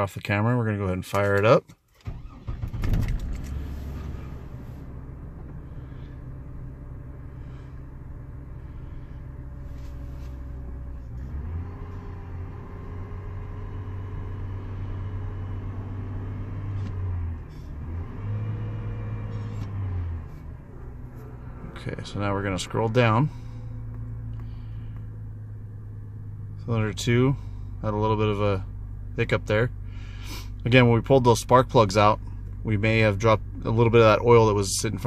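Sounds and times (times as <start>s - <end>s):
car engine fast idle: 2.0s - 12.3s, 19.5s - 26.7s.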